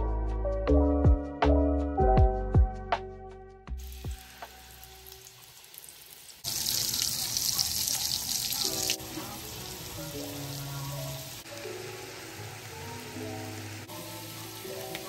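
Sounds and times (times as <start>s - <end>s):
soft background music: 0.0s - 5.3s, 8.6s - 15.0s
meatballs sizzling in oil: 3.8s - 15.0s.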